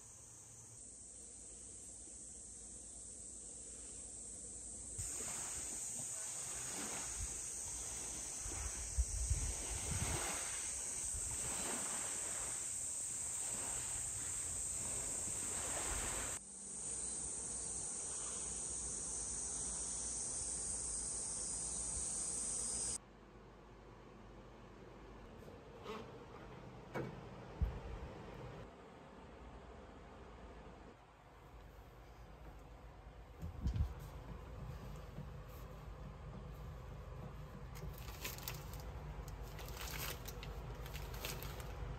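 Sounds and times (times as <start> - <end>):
cicada chorus buzzing: 0.0 - 23.0.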